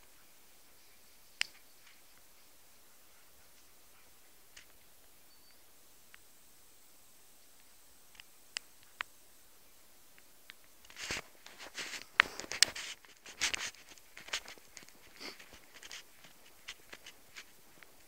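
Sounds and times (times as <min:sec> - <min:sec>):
faint clicks: 0:03.3 - 0:06.3, 0:07.4 - 0:09.2, 0:10.1 - 0:18.0
footsteps crunching on snow: 0:10.9 - 0:18.0.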